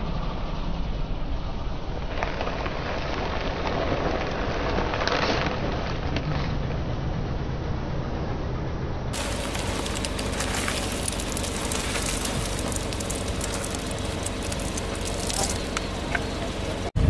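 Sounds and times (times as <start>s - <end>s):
car engine humming: 9.1s - 17.0s
tyre crushing snack bags: 9.2s - 16.9s.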